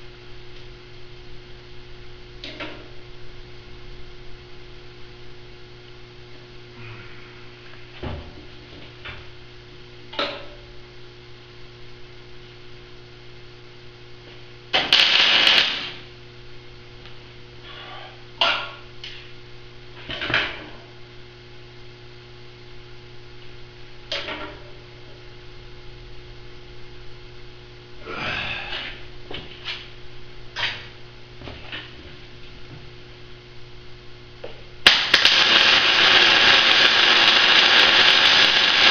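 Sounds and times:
steady electrical hum: 0:00.0 - 0:38.9
loud noisy burst: 0:14.9 - 0:16.0, 0:34.8 - 0:38.9.

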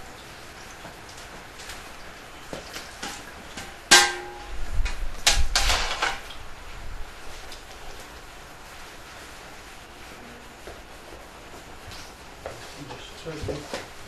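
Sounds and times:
trays and kettles clattering: 0:02.8 - 0:06.3
sharp metallic clank: 0:03.9 - 0:04.6.

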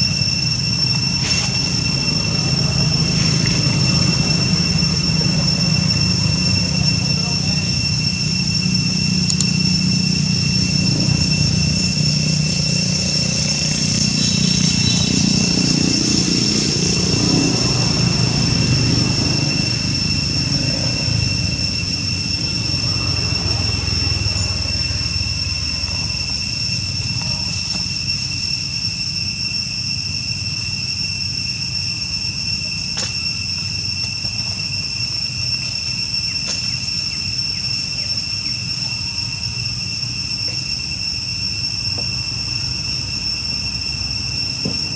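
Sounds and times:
low rumble: 0:00.0 - 0:27.7
high-pitched insect drone: 0:00.0 - 0:44.9.

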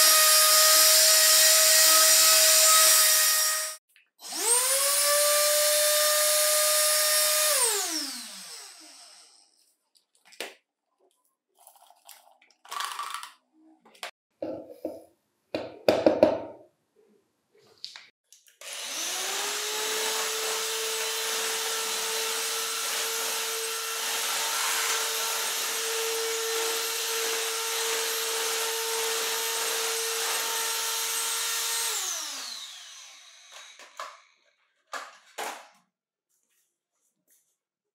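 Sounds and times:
stick vacuum motor whining: 0:00.3 - 0:09.5, 0:18.6 - 0:34.2.

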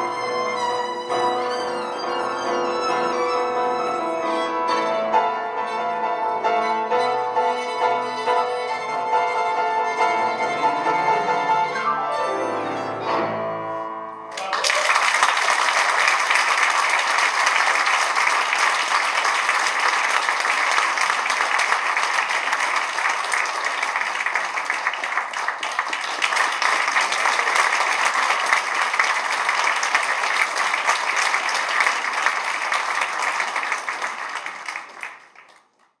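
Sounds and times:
tango ensemble playing: 0:00.0 - 0:14.3
audience applauding: 0:14.3 - 0:36.0.

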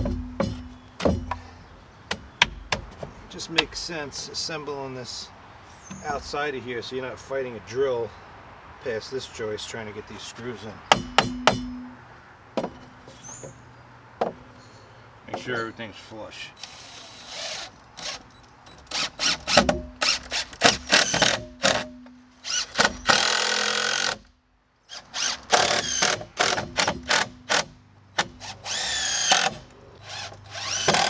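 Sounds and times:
sharp knocks: 0:00.0 - 0:01.4, 0:10.9 - 0:11.9, 0:12.6 - 0:13.6
cordless drill driving screws: 0:16.6 - 0:21.8, 0:24.9 - 0:31.0.

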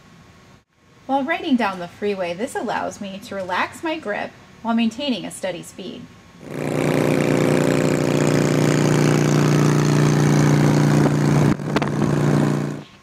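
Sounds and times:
motorcycle engine running: 0:06.4 - 0:13.0.

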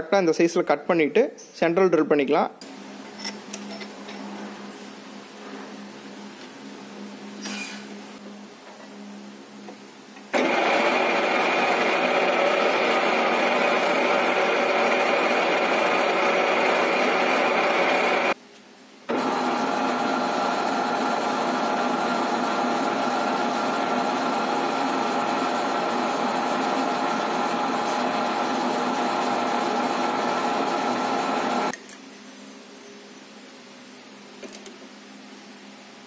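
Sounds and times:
metal lathe humming: 0:10.4 - 0:18.4, 0:19.1 - 0:31.7.

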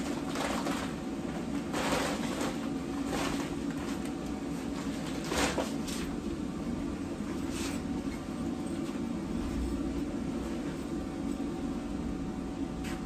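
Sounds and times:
rustling fabric and plastic sheeting: 0:00.0 - 0:06.2
blower fan humming: 0:00.0 - 0:13.0.

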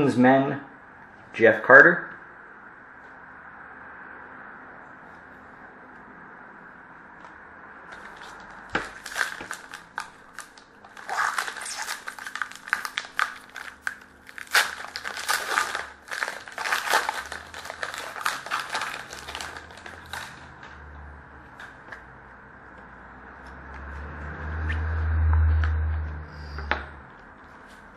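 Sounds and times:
wrapper tearing and crinkling: 0:08.0 - 0:20.5.

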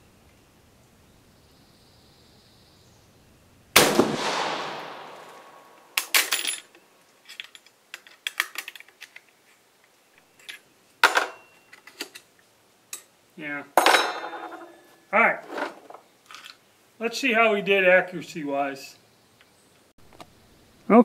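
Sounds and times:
rifle shot echo: 0:03.8 - 0:06.3
rifle action metal clicks and clanks: 0:06.0 - 0:09.3.

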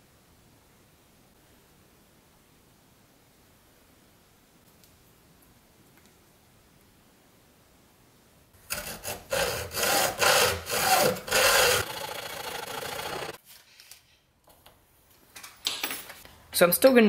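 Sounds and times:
hacksaw cutting metal: 0:08.7 - 0:13.4.

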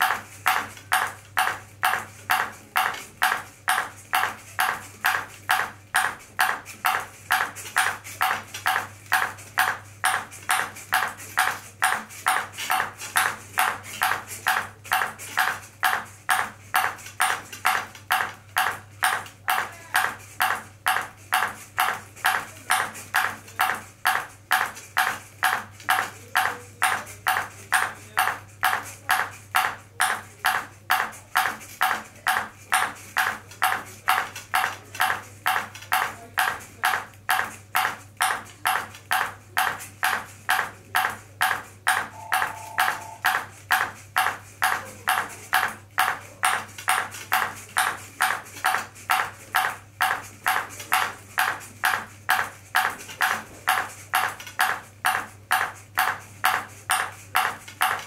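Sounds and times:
ping pong ball bouncing on plastic: 0:00.0 - 0:58.0.

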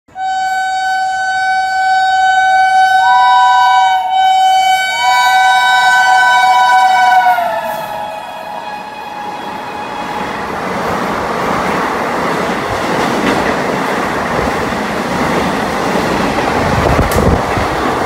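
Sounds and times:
train horn: 0:00.1 - 0:10.5.

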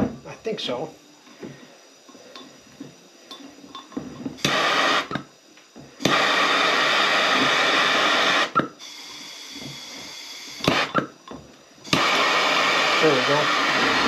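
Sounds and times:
gas torch rushing: 0:04.2 - 0:05.3, 0:05.9 - 0:11.2, 0:11.8 - 0:14.0.

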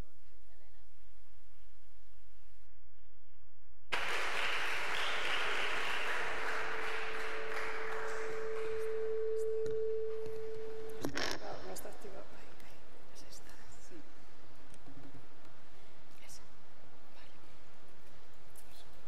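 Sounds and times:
audience applauding: 0:03.9 - 0:09.7
microphone feedback ring: 0:07.4 - 0:11.9.

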